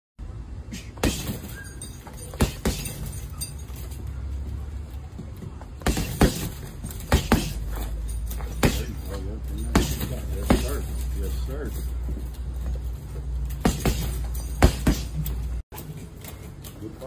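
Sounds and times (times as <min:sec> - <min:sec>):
gloves punching heavy bag: 0:00.8 - 0:03.3, 0:05.4 - 0:11.1, 0:13.4 - 0:15.6.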